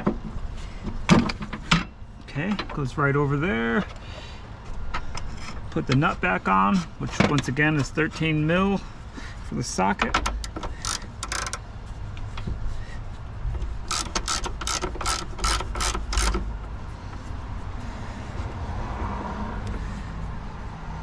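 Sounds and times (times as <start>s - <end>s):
socket ratchet clicking: 10.2s - 11.6s, 13.9s - 16.5s.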